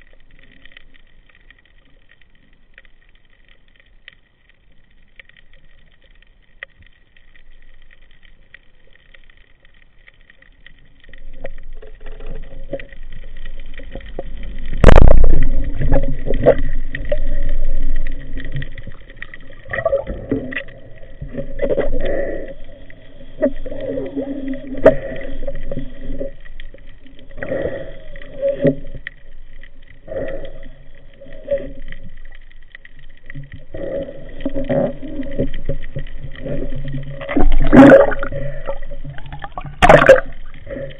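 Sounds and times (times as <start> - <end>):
muffled water sloshing and gurgling: 0.0 - 40.9.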